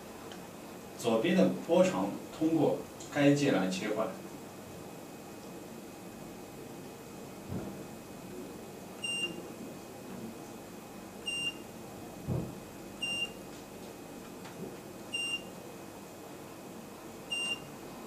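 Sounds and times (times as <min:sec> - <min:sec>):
soft knock: 0:12.2 - 0:12.6.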